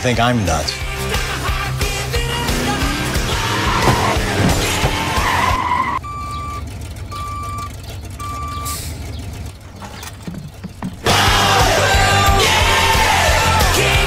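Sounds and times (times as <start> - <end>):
tyres screeching: 1.3 - 14.0
backup alarm beeps: 6.0 - 8.8.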